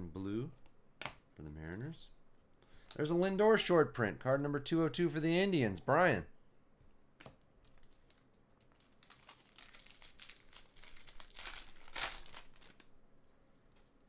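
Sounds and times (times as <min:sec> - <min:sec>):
foil pack crinkling: 0:07.7 - 0:12.9.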